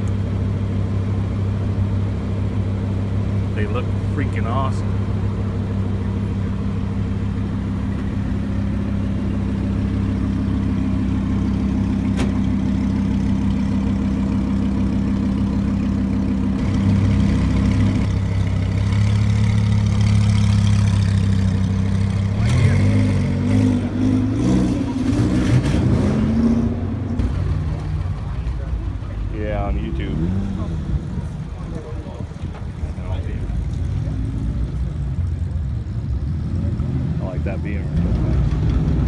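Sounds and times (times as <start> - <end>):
sports car engine idling and revving: 0.0 - 39.0.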